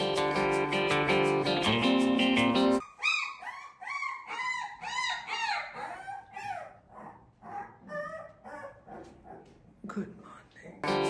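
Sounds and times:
puppies whimpering and squealing: 2.8 - 9.5.

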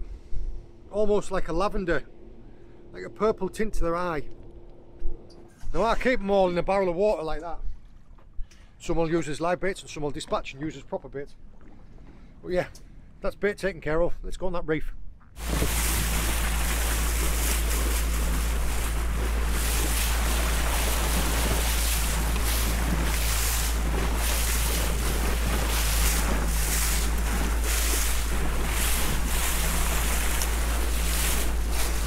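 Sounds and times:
boat engine hum: 0.0 - 5.6, 15.3 - 32.0
water rushing along bow: 15.4 - 32.0
water splashes: 15.4 - 32.0
wind buffeting microphone: 15.4 - 32.0.

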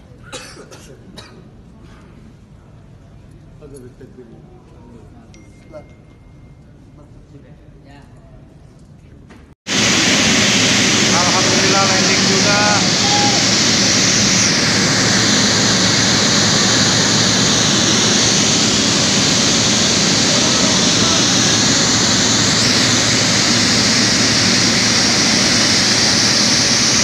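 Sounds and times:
jet engines running: 9.7 - 27.0.

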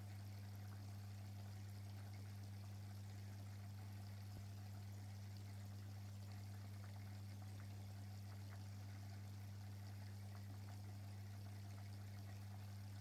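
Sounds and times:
aquarium pump humming: 0.0 - 13.0
water trickling: 0.0 - 13.0
small ticks: 6.3 - 9.2.

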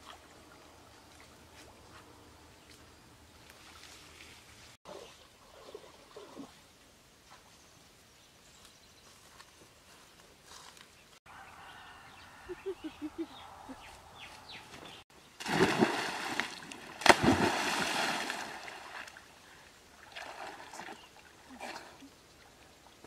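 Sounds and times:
slap on water: 15.4 - 17.6
water sloshing: 15.4 - 22.1
water splashing: 15.4 - 22.6.

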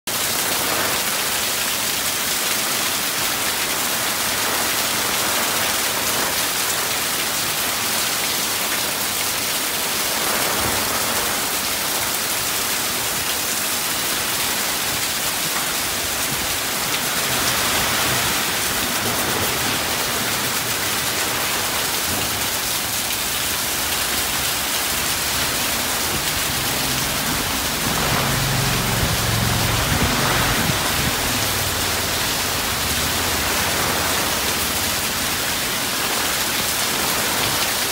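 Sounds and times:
heavy rain hissing: 0.1 - 37.9.

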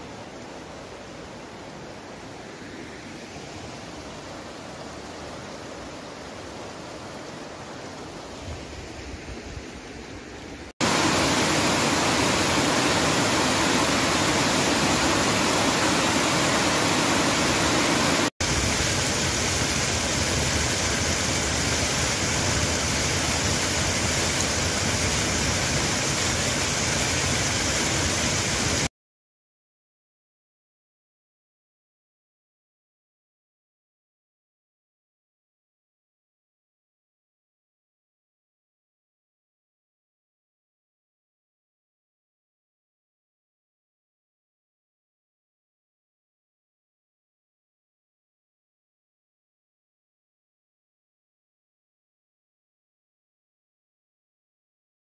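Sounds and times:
stream flowing over stones: 0.0 - 28.9
small waterfall splashing: 2.5 - 28.9.

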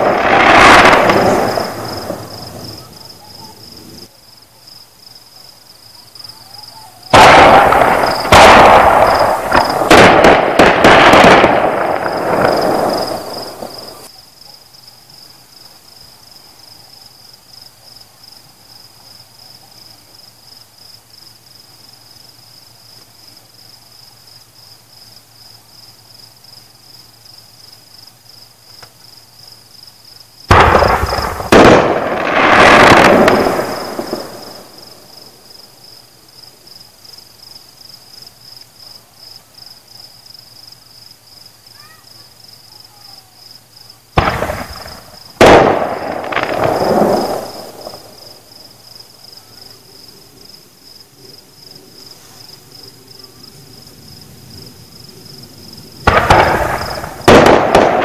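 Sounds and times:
fireworks exploding: 0.0 - 4.1, 6.2 - 14.1, 30.4 - 35.8, 44.1 - 50.0, 55.4 - 58.0
crickets chirping: 0.0 - 58.0.

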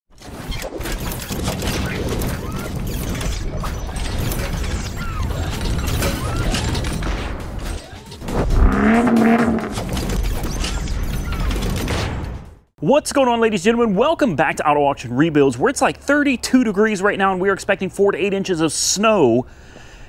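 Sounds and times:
pitched swell: 8.3 - 9.9
low rumble: 8.3 - 10.0.

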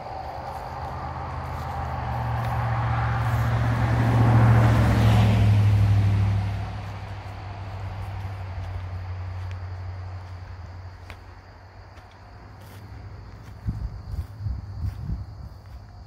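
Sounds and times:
vehicle passing by: 0.0 - 11.2
crickets chirping: 0.0 - 16.0.

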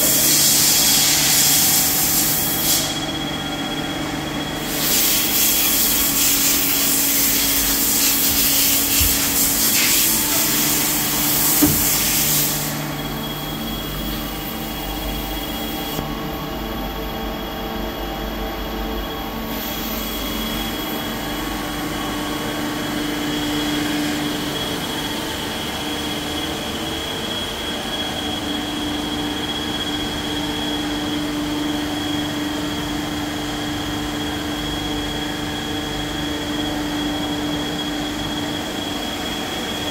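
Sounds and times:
loud hiss: 0.0 - 3.1, 4.6 - 13.9
lathe whining and humming: 0.0 - 39.9.

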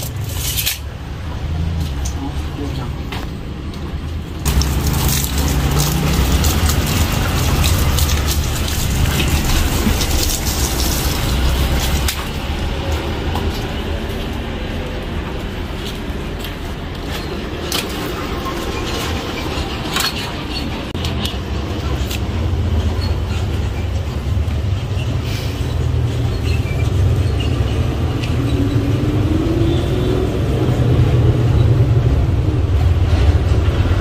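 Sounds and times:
hose water splashing: 4.5 - 13.6.

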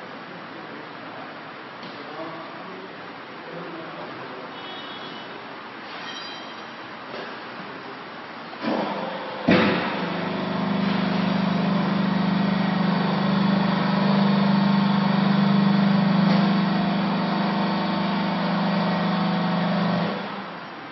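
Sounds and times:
hydraulic power pack humming: 8.6 - 20.6.

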